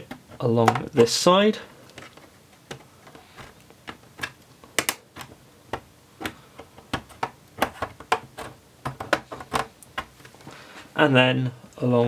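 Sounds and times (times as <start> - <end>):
plastic clips clicking loose: 3.9 - 8.3.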